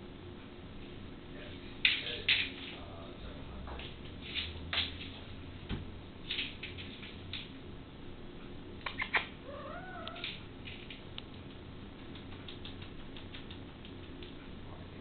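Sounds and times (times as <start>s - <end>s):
paws and toy skittering on floor: 6.3s - 7.5s, 9.8s - 14.5s
sharp clicks: 10.0s - 14.4s.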